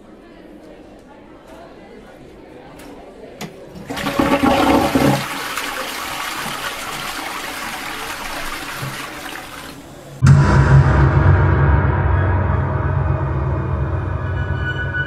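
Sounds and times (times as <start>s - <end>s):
toilet flushing: 3.7s - 10.2s.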